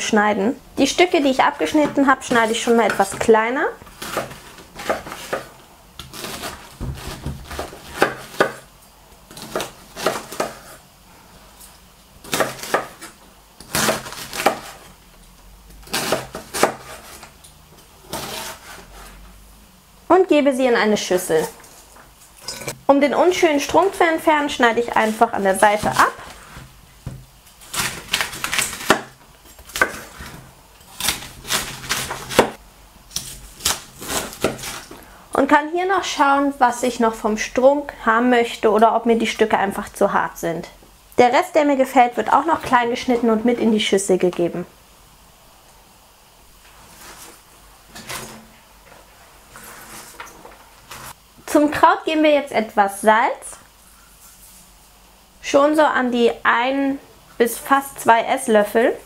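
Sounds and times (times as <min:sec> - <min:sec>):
knife cutting cabbage on board: 0:01.6 - 0:08.7, 0:09.3 - 0:10.8, 0:12.2 - 0:14.9, 0:15.8 - 0:17.3, 0:18.0 - 0:19.2, 0:24.9 - 0:35.0, 0:46.8 - 0:48.5.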